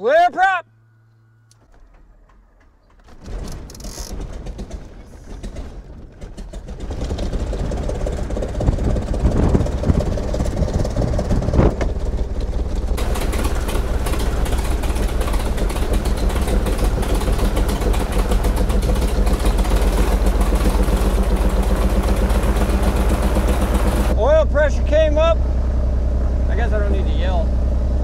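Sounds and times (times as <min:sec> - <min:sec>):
airplane piston engine running: 0:01.1 - 0:28.0
engine starting on starter: 0:01.5 - 0:08.4, 0:10.2 - 0:24.2.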